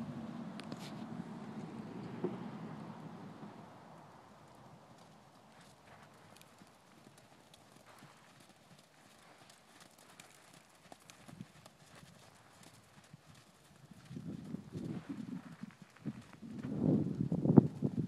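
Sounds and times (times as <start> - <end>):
horse hoofbeats on sand: 4.9 - 18.0.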